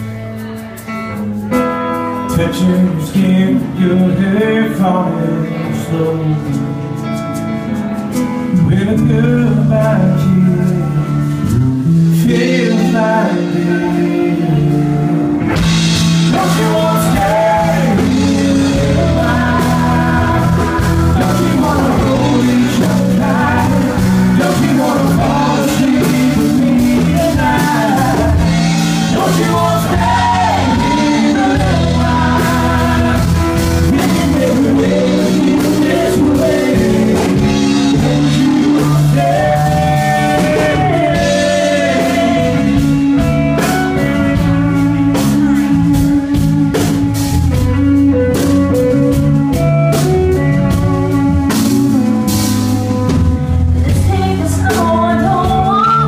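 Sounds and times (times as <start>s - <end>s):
country-rock band playing ballad: 0.0s - 56.0s
man and woman singing together: 12.1s - 15.1s, 16.2s - 43.6s.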